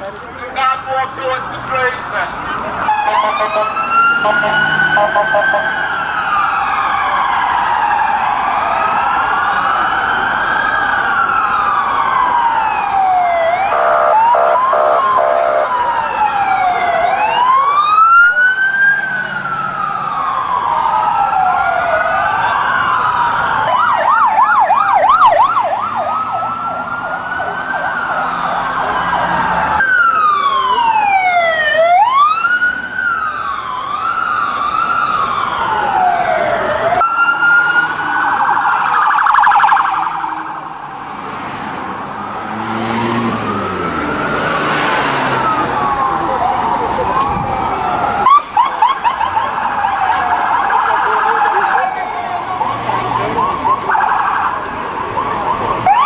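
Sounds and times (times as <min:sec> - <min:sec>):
sirens wailing: 0:00.0 - 0:56.0
siren fast yelp: 0:02.8 - 0:07.5, 0:11.8 - 0:40.7, 0:45.4 - 0:56.0.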